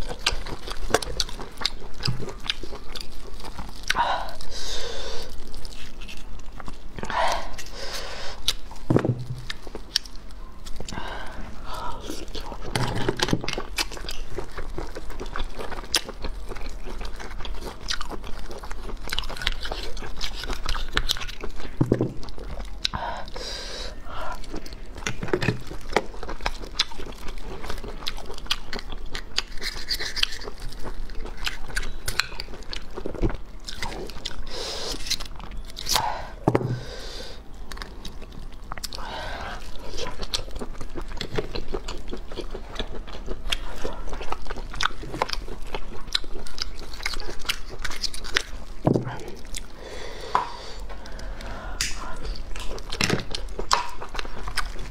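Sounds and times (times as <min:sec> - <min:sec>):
chewing and biting: 0:00.0 - 0:54.9
wet mouth sounds: 0:49.0 - 0:54.9.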